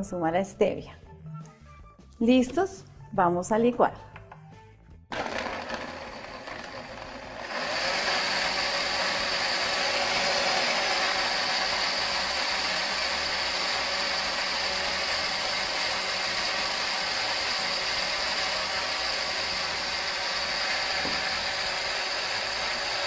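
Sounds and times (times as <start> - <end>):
blender running: 5.1 - 23.0.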